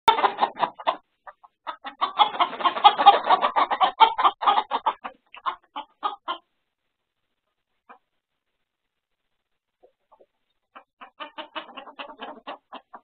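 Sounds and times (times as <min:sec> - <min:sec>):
chickens squawking and clucking: 0:00.1 - 0:06.7, 0:07.8 - 0:08.2, 0:09.8 - 0:13.0.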